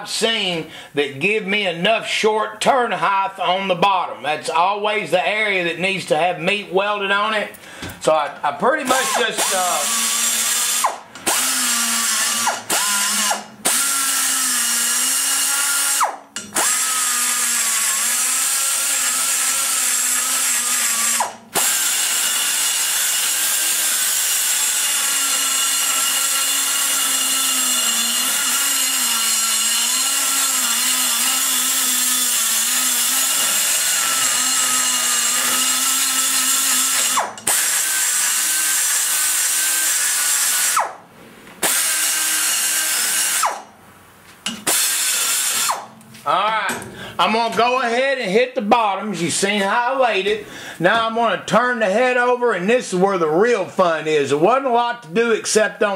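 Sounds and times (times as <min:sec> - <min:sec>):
die grinder cutting metal: 0:08.7 - 0:41.0, 0:41.6 - 0:43.7, 0:44.5 - 0:46.0.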